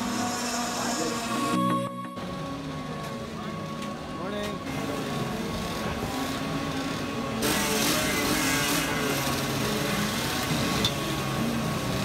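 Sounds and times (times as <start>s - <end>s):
two-stroke kart engine buzzing: 4.6s - 12.0s.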